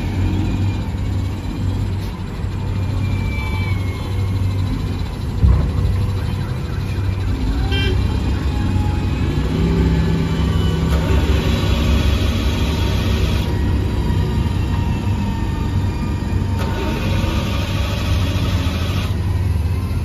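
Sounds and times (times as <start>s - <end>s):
diesel engine running under load: 0.0s - 20.0s
heavy thump: 5.4s - 6.3s.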